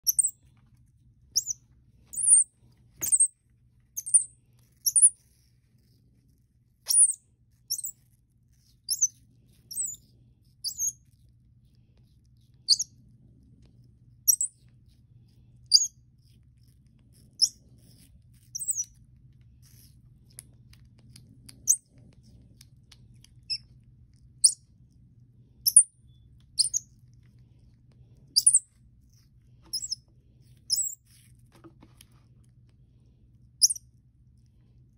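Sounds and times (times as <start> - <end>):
baby monkey high-pitched chirps: 0.0 - 0.4, 1.3 - 3.4, 4.0 - 5.2, 6.9 - 8.0, 8.9 - 11.0, 12.7 - 13.0, 14.3 - 14.6, 15.7 - 16.0, 17.4 - 17.6, 18.5 - 18.9, 25.6 - 26.9, 28.4 - 28.7, 29.7 - 30.0, 30.7 - 31.0, 33.6 - 33.9.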